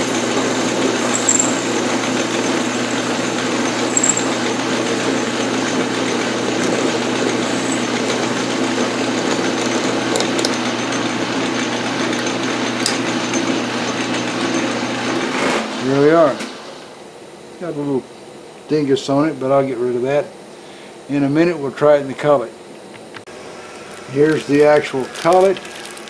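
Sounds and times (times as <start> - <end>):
metal lathe running: 0.0 - 15.5, 23.3 - 26.0
parting tool cutting metal: 3.7 - 4.4, 10.1 - 10.7.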